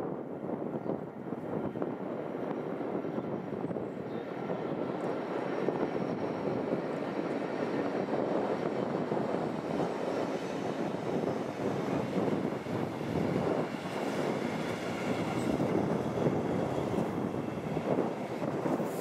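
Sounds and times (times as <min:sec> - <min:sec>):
diesel locomotive engine: 0:00.0 - 0:19.0
train wheels on rails: 0:04.2 - 0:19.0.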